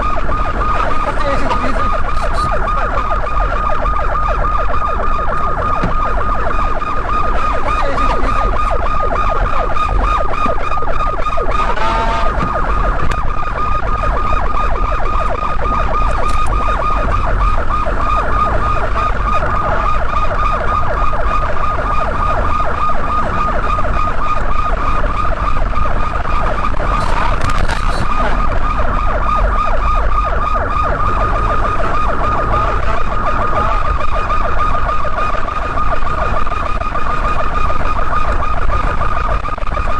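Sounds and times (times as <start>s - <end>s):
police sirens warbling: 0.0s - 39.9s
road and engine rumble: 0.0s - 39.9s.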